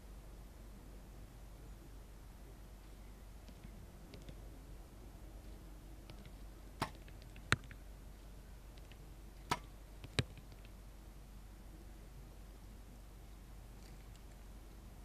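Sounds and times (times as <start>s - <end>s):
arrow hitting target: 6.8s - 7.0s, 9.5s - 9.7s
bow shot crack: 9.4s - 9.8s.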